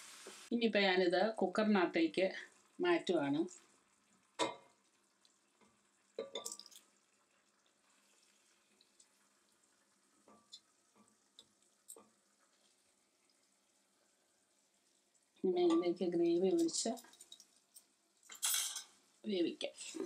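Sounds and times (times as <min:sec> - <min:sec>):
metal tongs tapping frying pan: 0:06.2 - 0:06.8, 0:15.6 - 0:17.4, 0:18.3 - 0:19.0.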